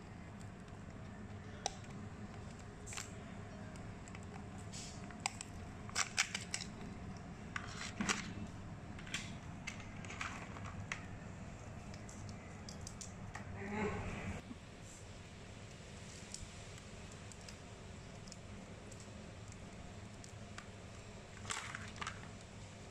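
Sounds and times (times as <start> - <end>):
crab shells clicking and cracking: 0.2 - 8.2, 11.8 - 13.4, 15.7 - 22.9.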